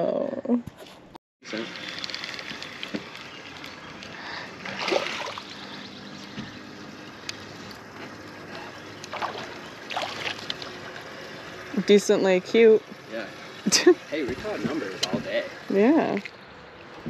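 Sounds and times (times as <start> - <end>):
water splashing and trickling: 1.5 - 7.6, 9.0 - 11.8.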